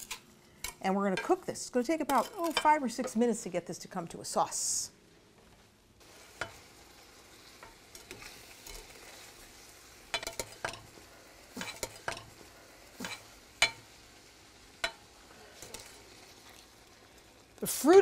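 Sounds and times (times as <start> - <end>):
sauce bubbling in saucepan: 6.0 - 18.0.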